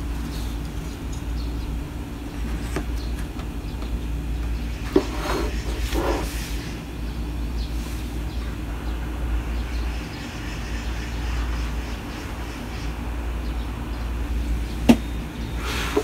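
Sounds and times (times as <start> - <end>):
steady low rumble: 0.0 - 5.0, 6.3 - 16.0.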